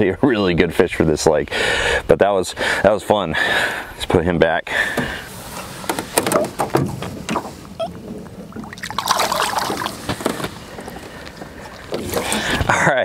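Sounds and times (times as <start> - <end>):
water splashing and sloshing: 5.0 - 12.8.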